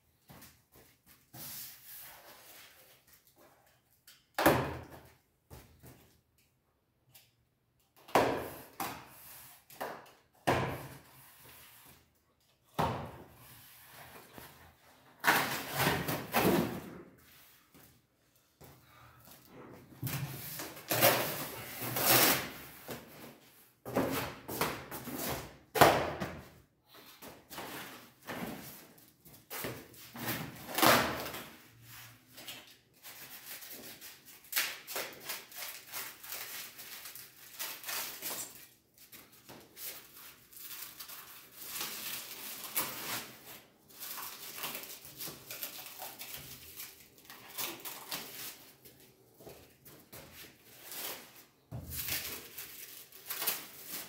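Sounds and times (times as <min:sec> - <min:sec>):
cardboard tearing: 0:20.8 - 0:22.7
plastic wrap crinkling: 0:40.0 - 0:48.9.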